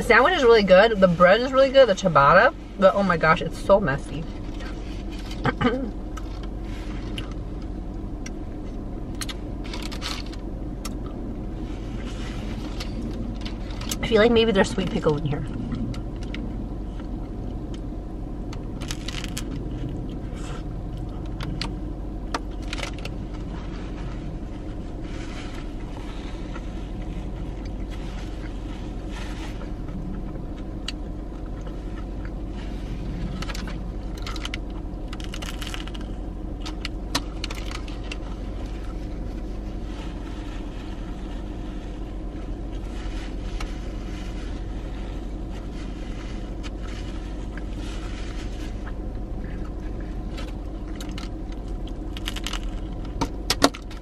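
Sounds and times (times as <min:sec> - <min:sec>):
steady car cabin hum: 0:00.0 - 0:54.0
chewing and mouth sounds: 0:29.4 - 0:39.0.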